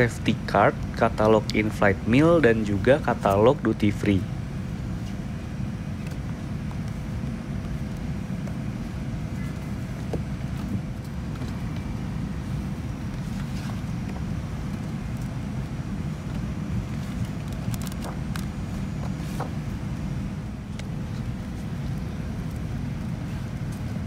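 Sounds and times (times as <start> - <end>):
low airliner cabin rumble: 0.0 - 24.0
magazine pages rustling: 17.0 - 19.6.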